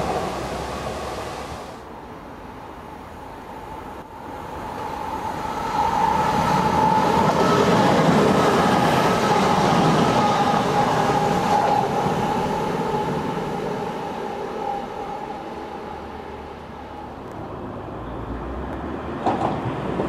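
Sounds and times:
train engine and wheels passing: 0:00.0 - 0:20.0.

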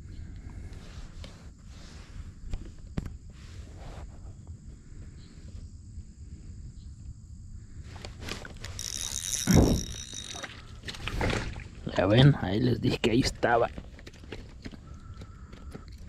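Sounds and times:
fishing reel whirring: 0:08.6 - 0:11.0.

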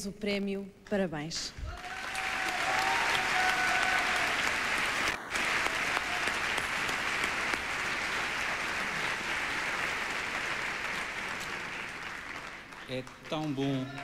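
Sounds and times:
audience applauding: 0:01.6 - 0:14.0.

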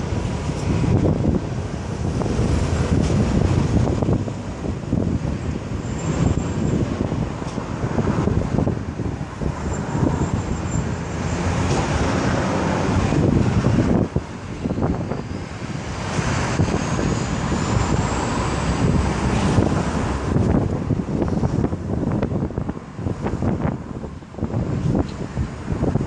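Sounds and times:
highway traffic noise: 0:00.0 - 0:26.0
wind buffeting microphone: 0:00.0 - 0:26.0.

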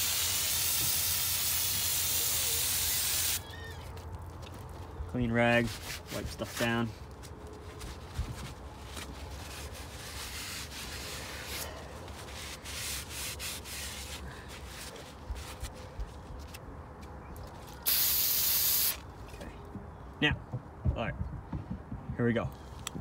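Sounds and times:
loud hiss: 0:00.0 - 0:03.4, 0:17.9 - 0:19.0.

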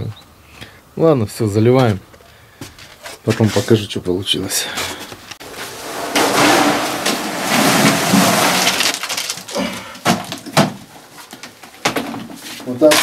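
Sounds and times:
wet concrete sliding from bucket: 0:05.4 - 0:09.6
bucket and trowel knocking: 0:05.6 - 0:10.9.

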